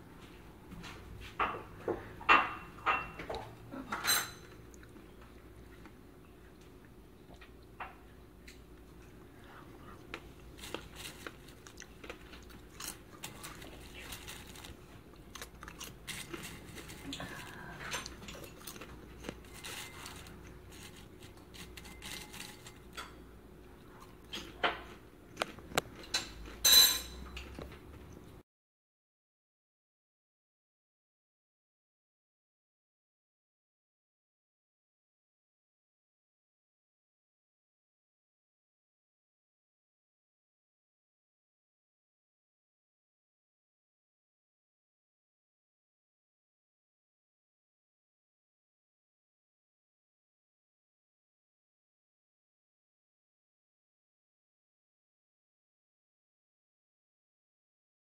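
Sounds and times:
popcorn crackling: 9.5s - 24.4s.

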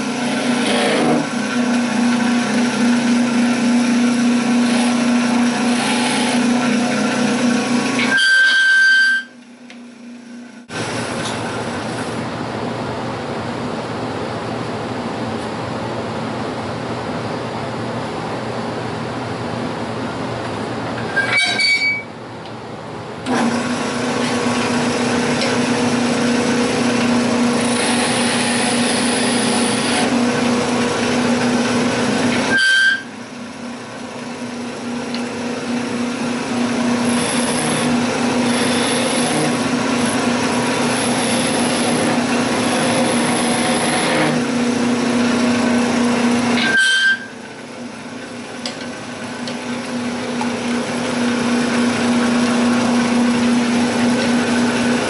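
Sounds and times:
chisel cutting wood: 0.0s - 1.3s, 4.3s - 7.0s, 27.6s - 30.1s, 36.9s - 44.5s
wood lathe humming: 0.0s - 9.0s, 23.3s - 33.1s, 34.0s - 47.2s.

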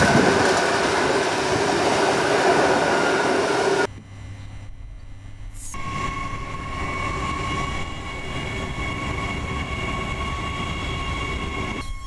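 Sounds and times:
wheels rumbling on track: 0.0s - 3.9s
electric train whine: 0.0s - 12.0s.

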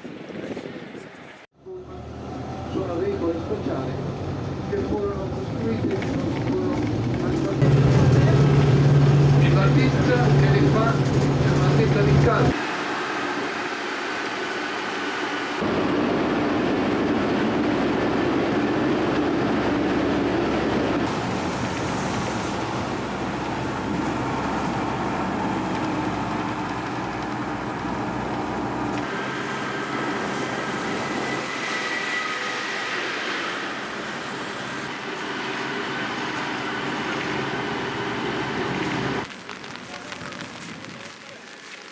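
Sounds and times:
vehicle rumbling and rattling: 0.1s - 13.1s, 13.7s - 41.9s.

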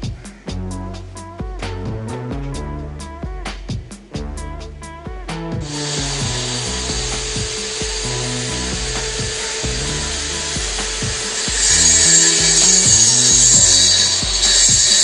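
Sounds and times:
music with a steady beat: 0.0s - 15.0s
continuous rasping noise: 5.6s - 15.0s.

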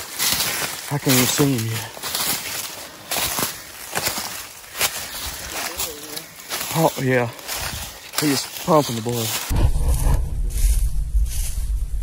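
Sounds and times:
footsteps crunching dry leaves: 0.0s - 12.0s
leaf rustle: 0.0s - 12.0s.

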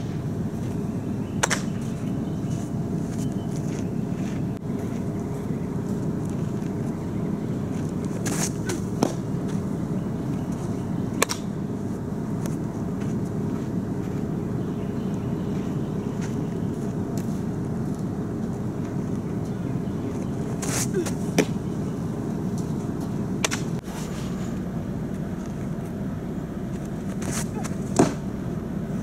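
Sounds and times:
low outdoor rumble: 0.0s - 29.0s
softball smacking into glove: 8.2s - 9.2s, 11.2s - 11.4s, 27.2s - 28.2s.

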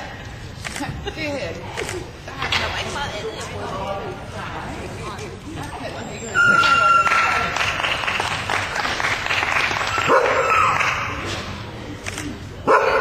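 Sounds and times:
dog barking: 10.0s - 10.7s, 12.7s - 13.0s.

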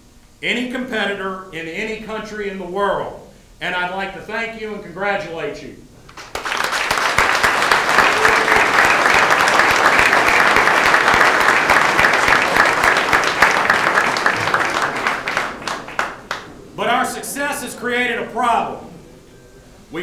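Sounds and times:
crowd applauding: 6.1s - 16.6s.

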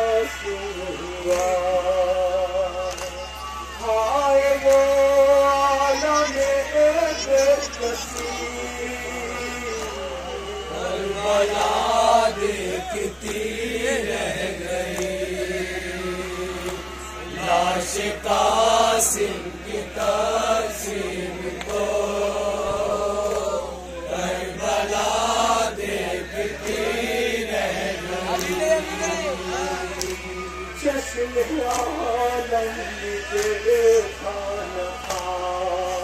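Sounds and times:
man chanting a lament into microphone: 3.8s - 16.6s, 26.2s - 36.0s.

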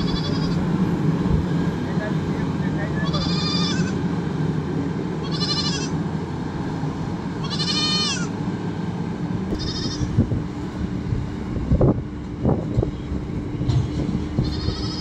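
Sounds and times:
livestock bleating: 0.0s - 0.8s, 2.9s - 4.1s, 5.2s - 6.0s, 7.4s - 8.4s, 9.5s - 10.2s, 14.4s - 15.0s
diesel engine low rumble: 0.0s - 15.0s.

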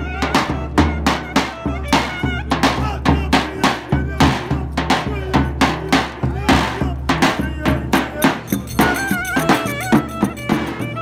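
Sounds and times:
heavy drum strokes: 0.0s - 11.0s
clarinet ornamented melody: 8.4s - 11.0s.

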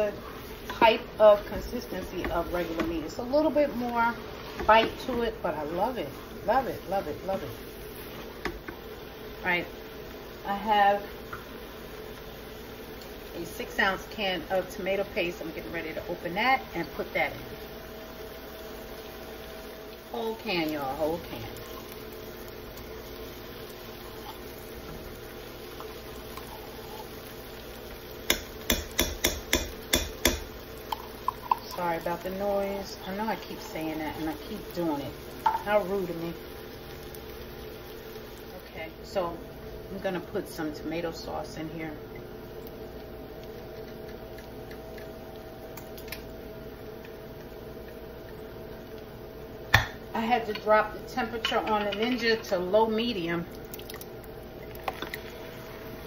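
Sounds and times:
food sizzling in pot: 0.0s - 56.0s
kitchen appliance humming: 0.0s - 56.0s
sharp knocks against pot: 28.3s - 30.5s, 49.7s - 50.0s.

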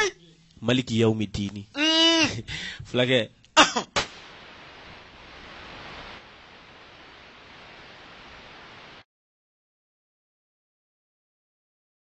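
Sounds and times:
background recording hiss: 0.0s - 9.0s.

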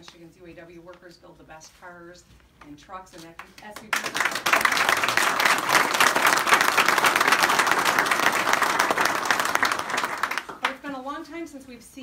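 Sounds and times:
crowd applauding: 3.9s - 10.8s.

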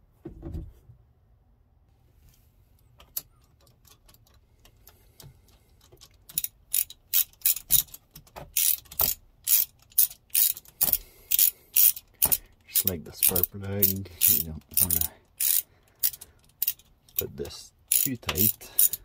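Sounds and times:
socket ratchet clicking: 5.8s - 19.0s.

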